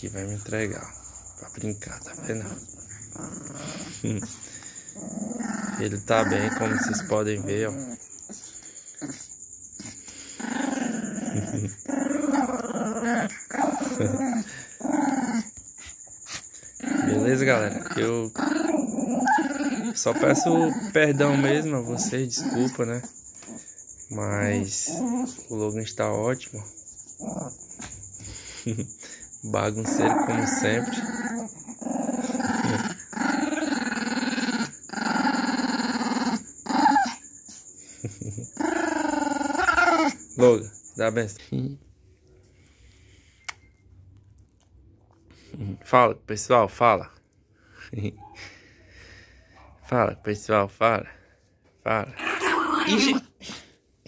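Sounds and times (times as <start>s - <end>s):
small dog growling: 0.0s - 26.2s, 26.8s - 40.6s, 52.1s - 53.7s.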